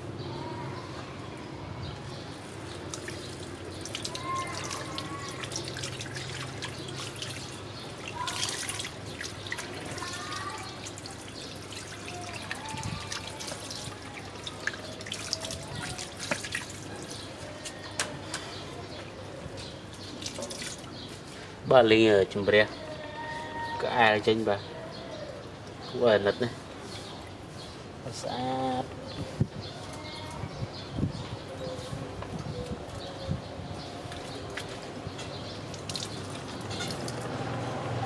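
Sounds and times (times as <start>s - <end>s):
water splashing and dripping: 2.5s - 21.3s, 32.2s - 38.0s.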